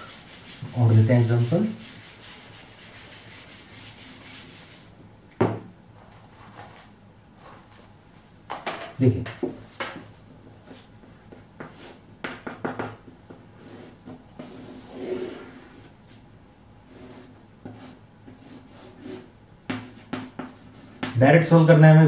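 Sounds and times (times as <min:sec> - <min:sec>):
chalk tapping and scraping on blackboard: 0:00.0 - 0:04.9, 0:09.4 - 0:16.2, 0:16.9 - 0:21.2.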